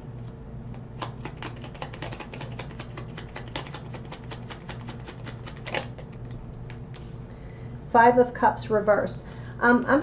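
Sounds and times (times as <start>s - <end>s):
cards being shuffled: 0.7s - 7.2s.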